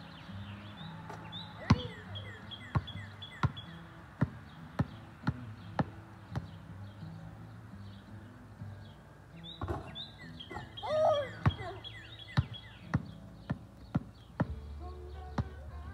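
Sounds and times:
birds chirping: 0.0s - 15.9s
basketball bouncing on asphalt: 1.0s - 7.0s, 9.5s - 10.6s, 11.3s - 15.8s.

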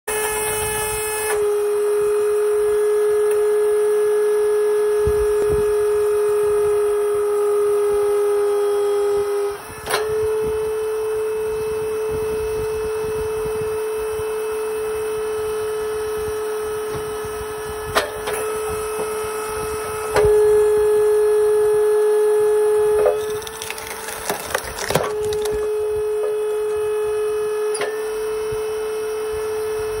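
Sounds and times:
log splitter motor humming: 0.1s - 30.0s
wood splitting cracks: 23.0s - 26.4s.

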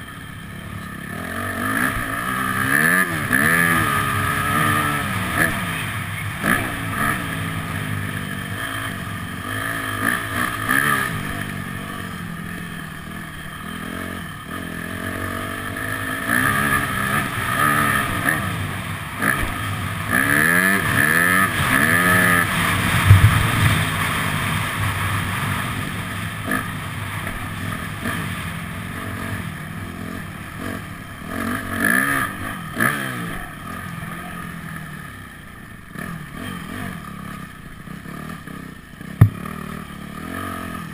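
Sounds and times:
motorbike engine revving: 0.0s - 40.9s
loud thump: 23.0s - 23.9s, 39.2s - 39.4s.

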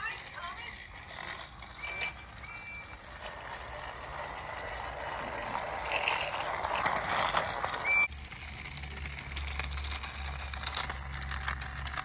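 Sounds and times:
toy train whirring rattle: 0.0s - 12.0s
short high beep: 1.8s - 3.0s.

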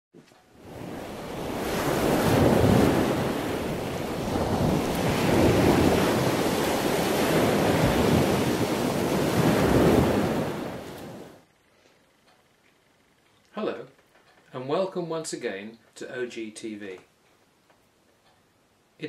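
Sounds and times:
sea waves washing in: 0.5s - 11.4s.

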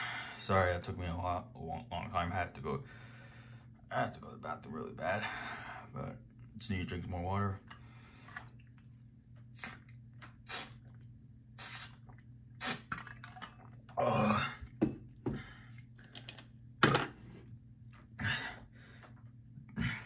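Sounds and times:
man burping: 14.0s - 14.8s.

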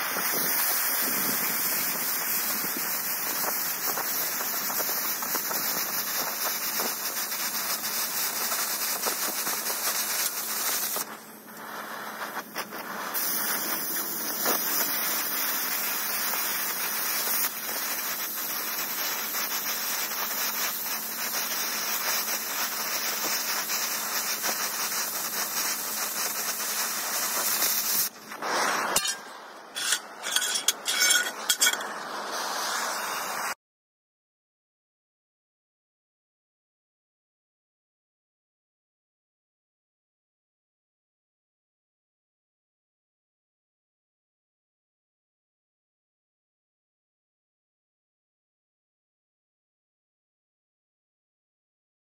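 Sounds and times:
cutting torch hissing: 0.0s - 33.6s
short irregular noises: 25.8s - 33.6s.

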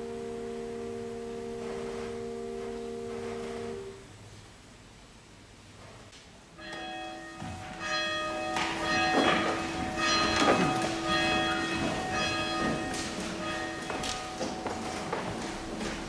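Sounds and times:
church bell ringing: 0.0s - 3.9s, 6.6s - 16.0s
congregation rustling and knocking: 5.8s - 16.0s.

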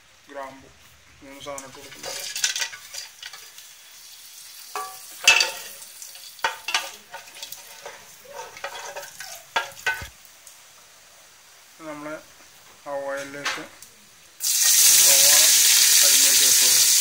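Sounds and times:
spices sizzling in hot oil: 0.8s - 12.8s, 14.2s - 17.0s
metal spatula scraping pot: 1.7s - 3.6s, 4.7s - 10.1s.

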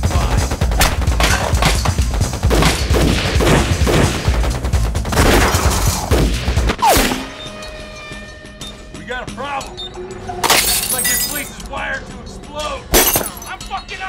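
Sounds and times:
rapid gunfire: 0.1s - 6.6s.

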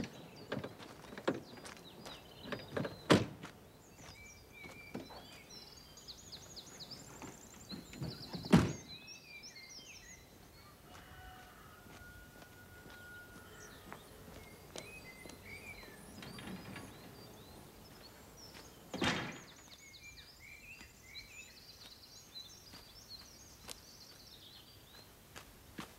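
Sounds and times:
footsteps on gravel: 0.0s - 8.4s, 10.0s - 16.2s, 16.9s - 19.8s, 20.6s - 25.9s
small birds chirping: 0.0s - 25.9s
car door slam: 8.4s - 8.9s
car tailgate slamming shut: 8.4s - 8.9s, 18.9s - 19.5s.

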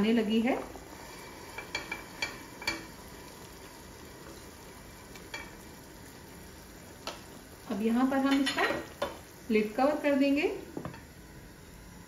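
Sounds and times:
soft bubbling of boiling water: 0.0s - 12.0s
spatula tapping and scraping pot: 1.5s - 3.0s.

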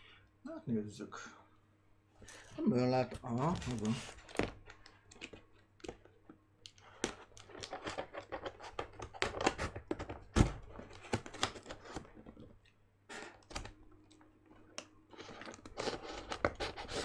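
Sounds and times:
scissors cutting cardboard: 15.2s - 17.0s.

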